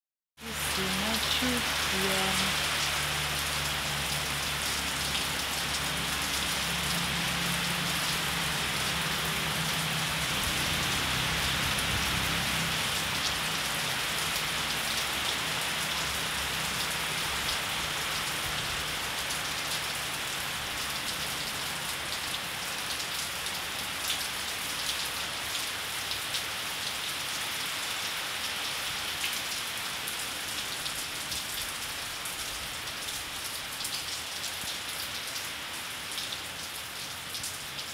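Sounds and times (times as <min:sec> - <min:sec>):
steady rain hiss: 0:00.4 - 0:37.9
raindrops clicking close by: 0:29.2 - 0:37.9.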